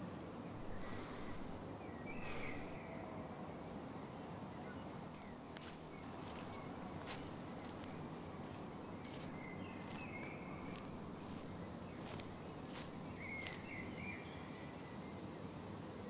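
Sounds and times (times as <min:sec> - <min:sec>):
low outdoor background noise: 0:00.0 - 0:16.0
bird chirps: 0:00.5 - 0:02.8, 0:04.7 - 0:14.5.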